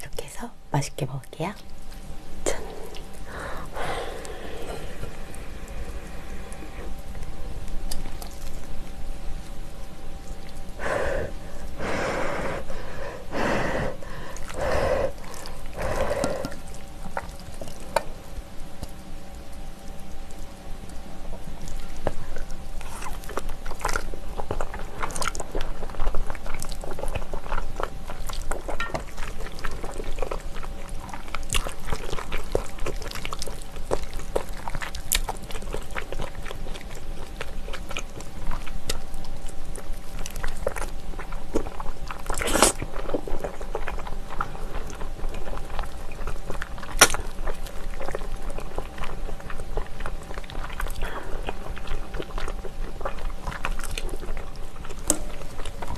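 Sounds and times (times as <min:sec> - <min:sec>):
chewing and slurping noodles: 0:01.9 - 0:55.9
wet mouth clicks: 0:42.3 - 0:42.9.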